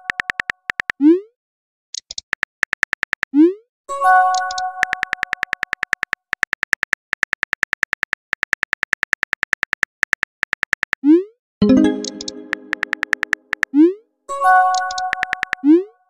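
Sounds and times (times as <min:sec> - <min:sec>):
rapid keyboard clicks: 0:00.0 - 0:01.0, 0:02.0 - 0:03.3, 0:04.3 - 0:11.0, 0:12.0 - 0:13.7, 0:14.7 - 0:15.6.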